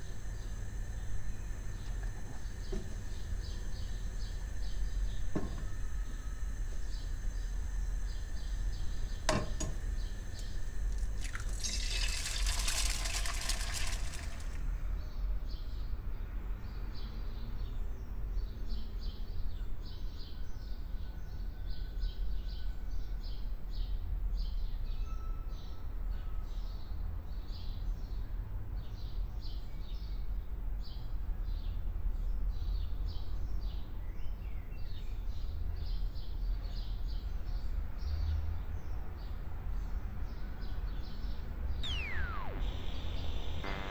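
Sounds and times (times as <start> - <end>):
oil sizzling in frying pan: 11.2 - 14.6
low hum: 41.8 - 43.9
rapid repeated chirping: 41.8 - 43.9.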